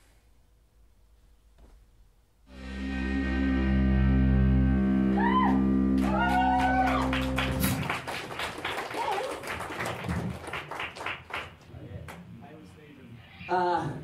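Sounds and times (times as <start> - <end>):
electric bass and guitar chord: 2.5 - 7.8
scattered clapping: 6.0 - 12.3.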